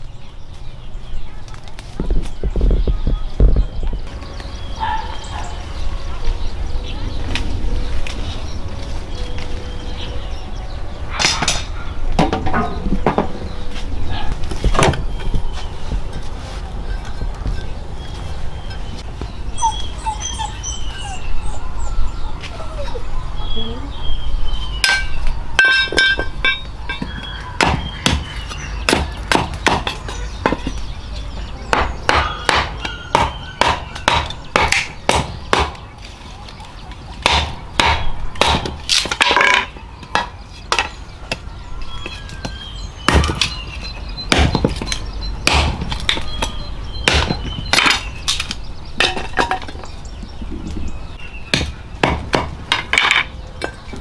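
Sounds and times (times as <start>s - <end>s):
machete chopping wood: 27.0s - 30.8s, 31.7s - 35.8s, 37.2s - 41.0s, 42.1s - 43.6s, 44.3s - 49.7s, 51.5s - 53.2s.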